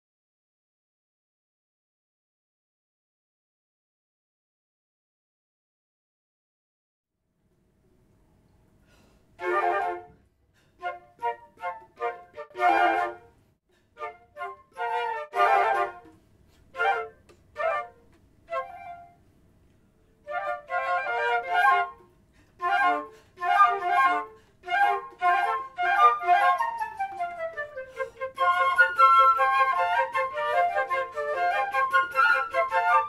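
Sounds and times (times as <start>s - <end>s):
flute quartet playing: 9.4s - 10.2s, 10.8s - 13.4s, 14.0s - 19.2s, 20.3s - 33.0s.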